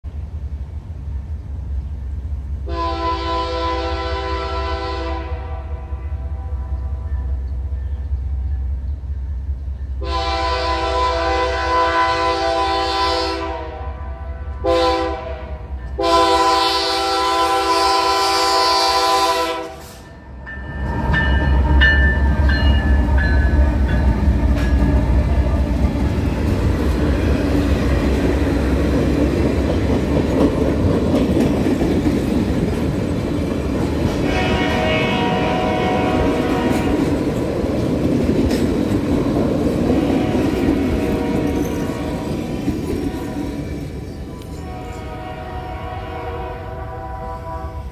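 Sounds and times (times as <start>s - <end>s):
locomotive engine rumble: 0.0s - 47.9s
railcars clickety-clack on rails: 0.0s - 47.9s
locomotive air horn blasts: 2.6s - 7.4s, 10.0s - 20.2s, 34.2s - 37.2s, 39.9s - 42.3s, 44.5s - 47.9s.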